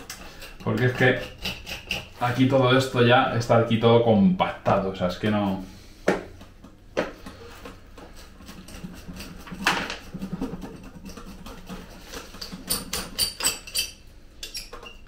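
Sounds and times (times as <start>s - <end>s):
hand saw rasping through roots: 0.0s - 2.3s, 8.0s - 14.0s.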